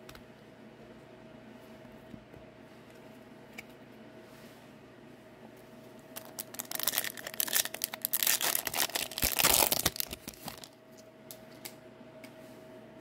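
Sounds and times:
foil wrapper tearing and crumpling: 0:06.2 - 0:10.7.

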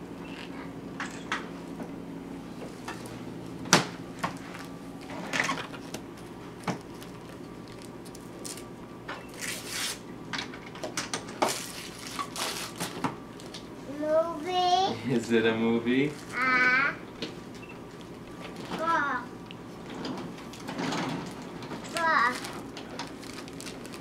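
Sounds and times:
paper crinkling and rustling: 0:05.7 - 0:08.7, 0:11.5 - 0:13.6, 0:21.8 - 0:24.0.

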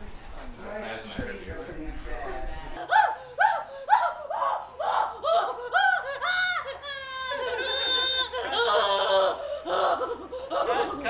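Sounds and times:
woman crying out: 0:02.8 - 0:11.0
woman wailing high-pitched: 0:02.8 - 0:11.0.

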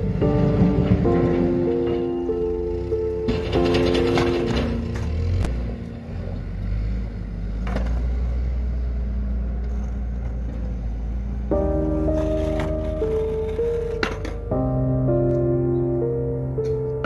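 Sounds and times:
skateboard clacks on pavement: 0:07.6 - 0:08.1.

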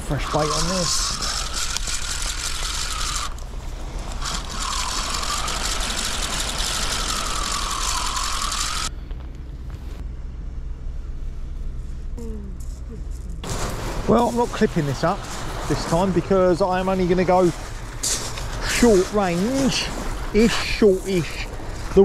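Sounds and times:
fishing reel whirring: 0:00.1 - 0:08.9.

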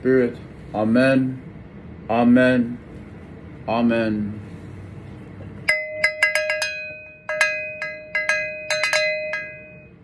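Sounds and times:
small metal bell ringing: 0:05.7 - 0:10.0.

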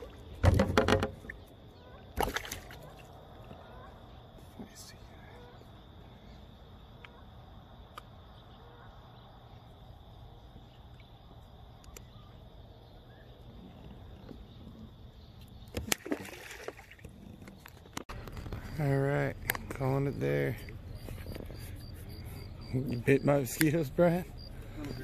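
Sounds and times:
insects trilling: 0:00.0 - 0:25.0
sharp knocks and clatters: 0:00.4 - 0:01.3.

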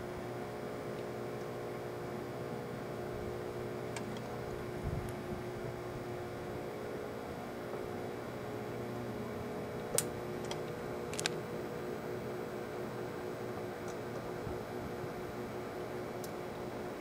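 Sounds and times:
microwave oven humming: 0:00.0 - 0:17.0
electric arcing crackling snaps: 0:09.8 - 0:11.4.

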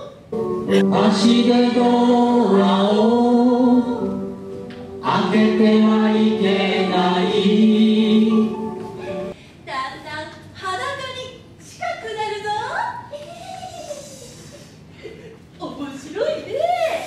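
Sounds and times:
voices singing held notes: 0:00.7 - 0:04.4, 0:05.0 - 0:09.3.

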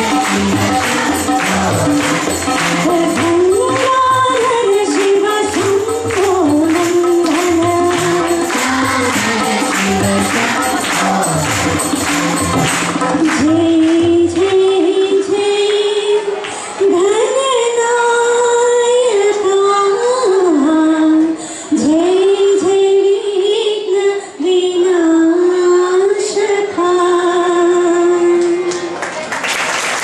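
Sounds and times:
harmonium accompaniment: 0:00.0 - 0:19.0
girl singing into microphone: 0:02.7 - 0:11.2, 0:13.2 - 0:29.0.

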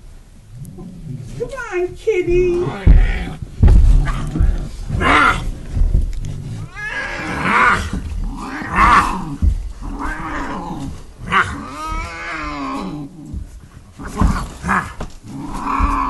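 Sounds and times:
cat yowling and growling: 0:04.1 - 0:05.5, 0:06.6 - 0:13.4, 0:14.0 - 0:16.0.

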